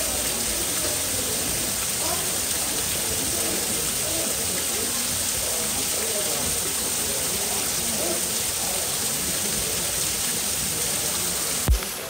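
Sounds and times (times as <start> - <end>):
crowd chatter: 0.0 - 12.0.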